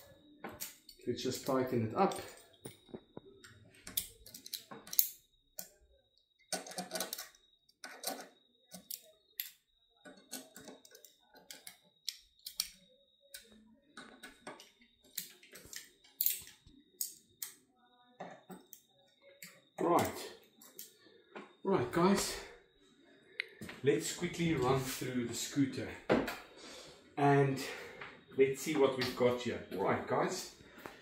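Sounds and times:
allen key clicks and scrapes: 3.8 - 5.8, 6.5 - 12.8.

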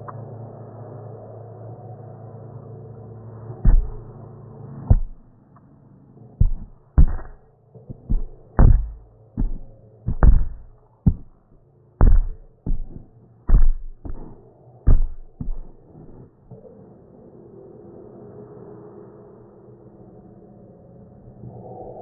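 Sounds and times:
hand thumping on microphone: 3.6 - 4.1, 4.9 - 5.3, 6.4 - 11.4, 12.0 - 15.8.

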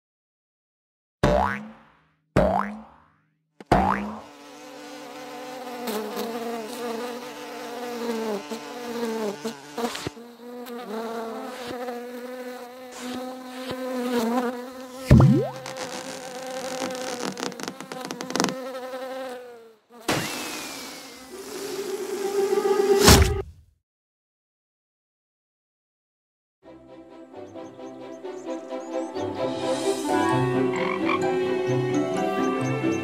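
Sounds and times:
cartoon fly buzzing: 3.7 - 23.4
rising pitch sound effect: 15.1 - 15.7.

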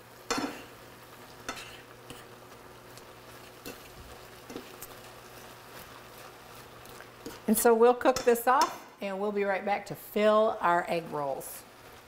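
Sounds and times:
faint sizzle: 0.0 - 12.0
spoon stirring food in a pan: 0.2 - 9.0
spoon clicking against pan: 8.1 - 8.8.

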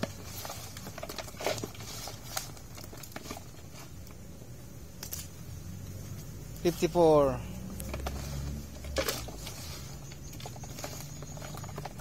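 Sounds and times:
fish patters against plastic: 0.0 - 4.0, 7.8 - 12.0.

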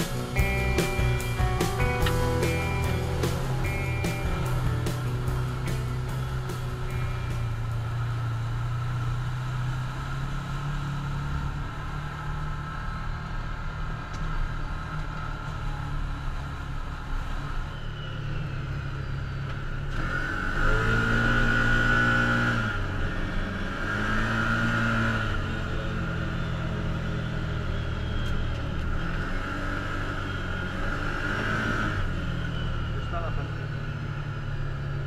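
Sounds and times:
vehicle engine running: 0.0 - 17.5.

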